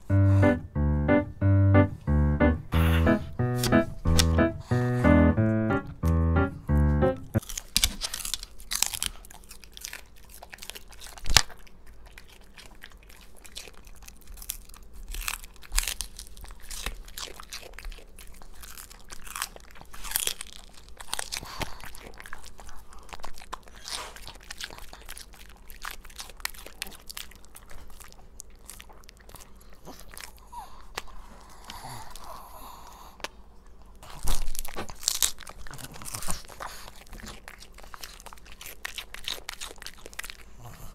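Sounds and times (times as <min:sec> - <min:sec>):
dogs chewing celery crunches: 0:07.4 - 0:40.9
celery snapping: 0:07.5 - 0:09.0.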